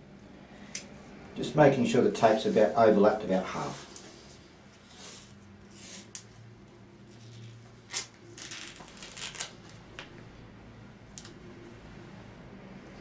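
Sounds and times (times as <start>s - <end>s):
tape peeling off roll: 7.1s - 10.1s.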